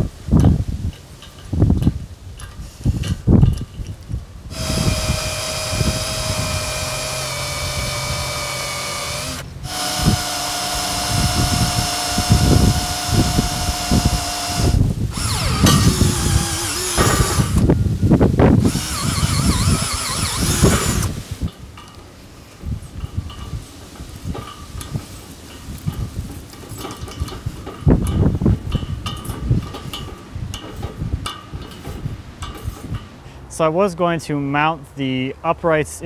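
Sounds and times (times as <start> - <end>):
electric drill drilling steel: 4.5 - 17.7, 18.6 - 21.2
metal knocks and clanks: 22.9 - 33.2.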